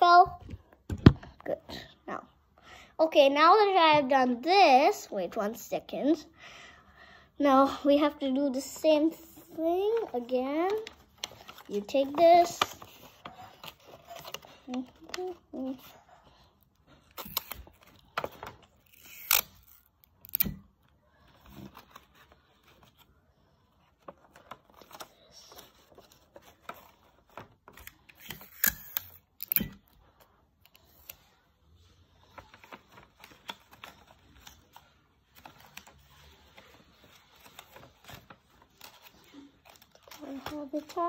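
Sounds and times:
paper rustling and creasing: 0:08.6 - 0:19.9, 0:21.0 - 0:28.6, 0:30.0 - 0:41.0.

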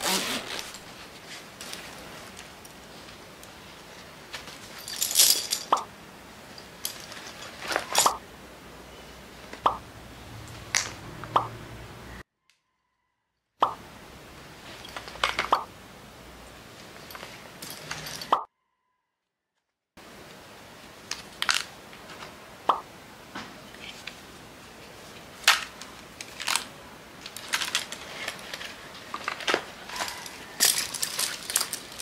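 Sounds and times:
soft rustles of a bag: 0:00.1 - 0:04.9
items clicking and tapping: 0:14.8 - 0:15.7, 0:25.4 - 0:32.0.

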